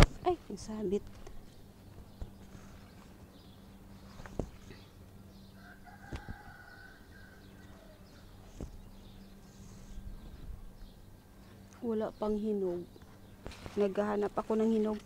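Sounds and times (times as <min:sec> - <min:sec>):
faint rooster crowing: 0:05.5 - 0:08.4.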